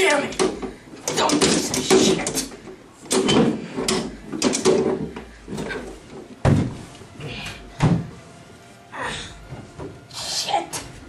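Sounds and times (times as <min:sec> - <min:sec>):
knocks and thumps: 0:00.3 - 0:06.9, 0:07.8 - 0:08.2.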